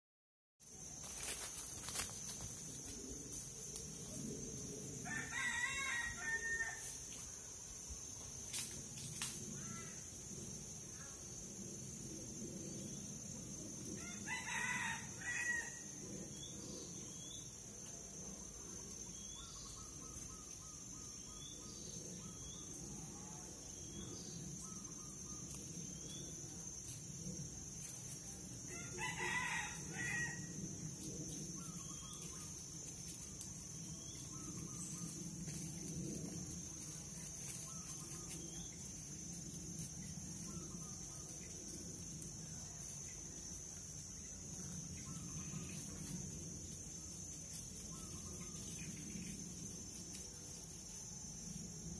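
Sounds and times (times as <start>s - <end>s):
high insect drone: 0.6s - 51.9s
rooster crowing: 5.0s - 7.0s, 14.0s - 15.9s, 28.7s - 30.6s.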